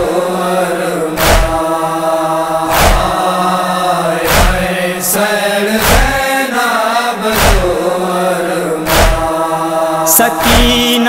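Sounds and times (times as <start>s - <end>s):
men chanting a lament: 0.0s - 11.0s
chest-beating strikes: 1.2s - 1.6s, 2.7s - 3.2s, 4.3s - 4.7s, 5.8s - 6.2s, 7.4s - 7.7s, 8.9s - 9.4s, 10.4s - 11.0s.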